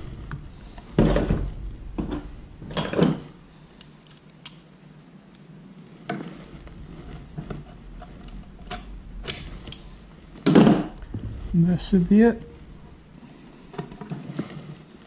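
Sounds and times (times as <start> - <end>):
metallic clicks of pliers: 3.8 - 4.6
metal scraping: 6.1 - 15.0.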